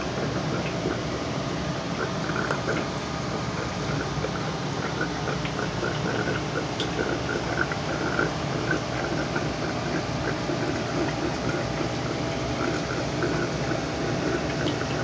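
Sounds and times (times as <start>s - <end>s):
aquarium water bubbling: 0.0s - 15.0s.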